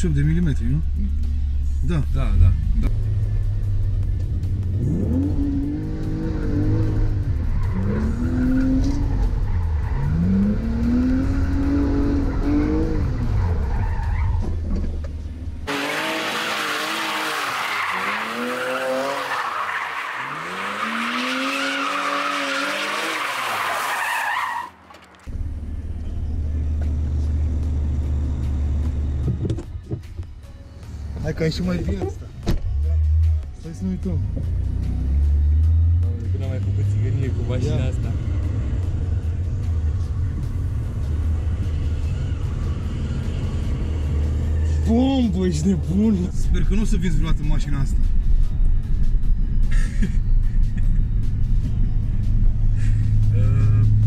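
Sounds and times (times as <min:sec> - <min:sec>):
car engine revving: 0:02.2 - 0:25.6
tyre squeal: 0:15.7 - 0:25.3.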